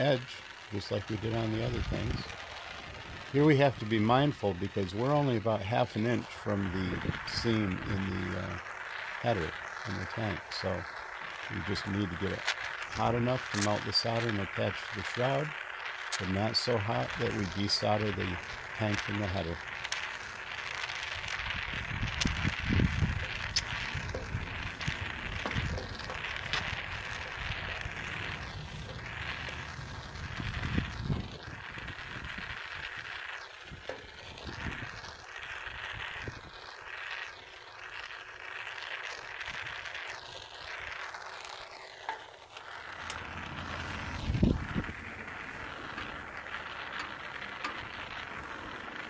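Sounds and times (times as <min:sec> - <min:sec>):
faint crackles: 0:00.0 - 0:49.0
torch flame hissing: 0:00.0 - 0:49.0
low rumble: 0:43.0 - 0:48.6.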